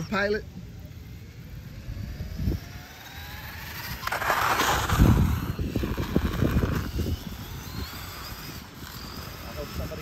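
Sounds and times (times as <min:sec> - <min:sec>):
faint electric motor whine: 0:00.0 - 0:10.0
scraping rush on asphalt: 0:02.5 - 0:10.0.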